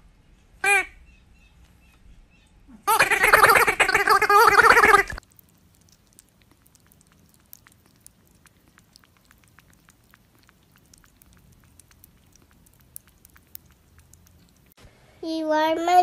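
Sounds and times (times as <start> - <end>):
kitten lapping wet mouth clicks: 5.2 - 14.8.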